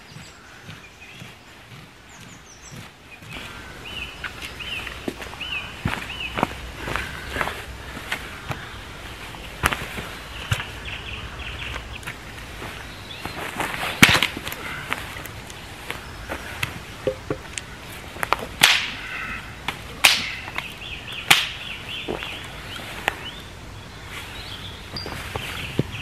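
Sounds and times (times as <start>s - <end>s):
dry sticks snapping: 14.0s - 14.6s, 16.6s - 22.4s.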